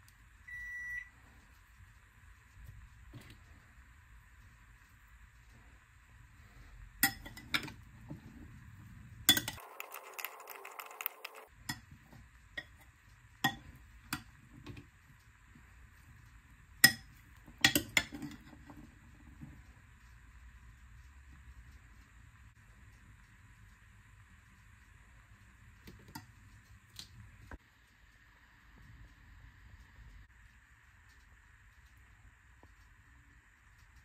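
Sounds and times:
soft stirring: 6.4s - 20.0s.

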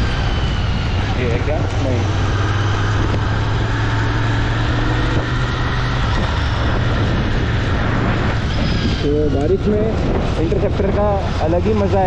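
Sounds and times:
heavy wind noise: 0.0s - 12.0s
motorcycle engine running: 0.0s - 12.0s.

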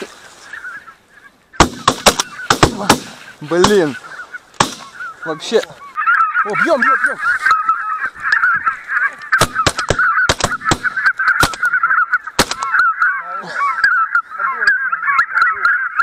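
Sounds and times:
geese honking: 0.0s - 16.0s
shotgun shots: 1.6s - 3.9s, 4.6s - 5.0s, 9.4s - 11.7s, 12.4s - 12.7s.

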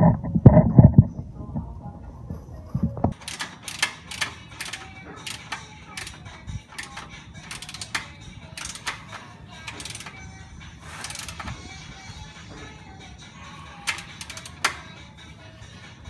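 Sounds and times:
ratchet wrench clicking: 3.1s - 12.8s, 13.5s - 15.8s.

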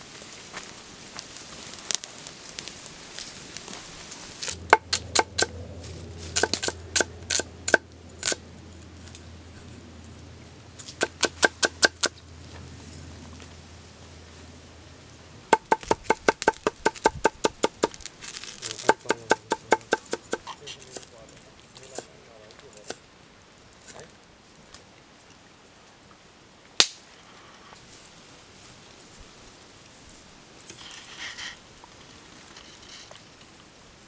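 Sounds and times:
cleaver chopping on wood: 6.4s - 8.4s, 10.9s - 12.1s, 15.5s - 18.0s, 18.8s - 20.5s.

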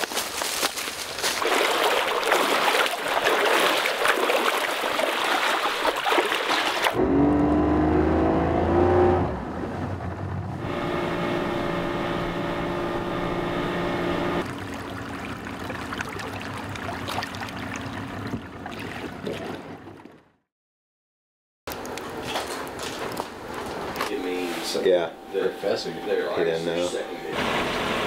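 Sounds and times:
footsteps crunching through dry leaves: 0.0s - 1.6s
engine speeding up: 7.0s - 15.8s.

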